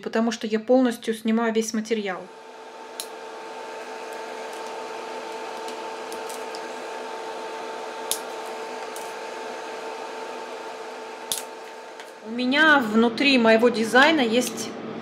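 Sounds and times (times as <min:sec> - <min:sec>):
electric nail drill whine: 0:02.3 - 0:12.4.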